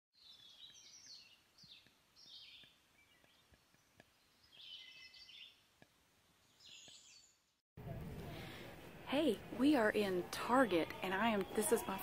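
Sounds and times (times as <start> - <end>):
bird chirping: 0.2 - 5.6, 6.4 - 7.6.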